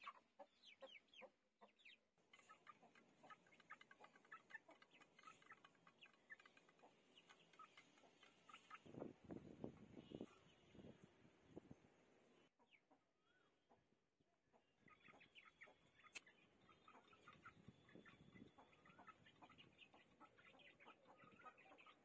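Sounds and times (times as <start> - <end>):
soft chick chirps: 0.0 - 11.8, 12.4 - 22.0
chickens pecking on concrete: 1.6 - 9.7.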